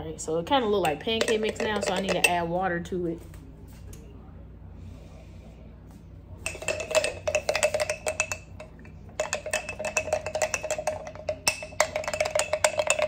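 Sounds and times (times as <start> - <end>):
utensil clinking in glass jar: 0.7 - 2.4, 6.4 - 13.0.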